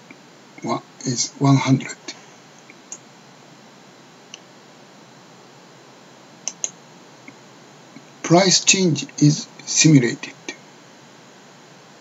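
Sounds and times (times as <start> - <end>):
low steady hiss: 0.0 - 12.0
computer mouse clicks: 6.5 - 6.8.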